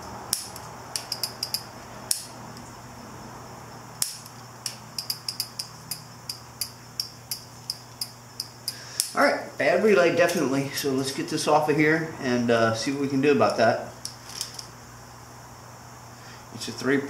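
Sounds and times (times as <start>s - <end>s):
flasher relay clicking: 0.3s - 2.6s, 4.0s - 9.2s.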